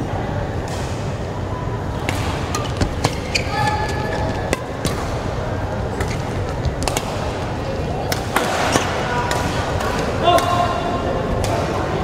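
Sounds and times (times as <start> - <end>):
sports hall din with voices: 0.0 - 12.0
rackets hitting shuttlecocks: 2.0 - 10.8
shoe squeaks on court floor: 3.0 - 4.5.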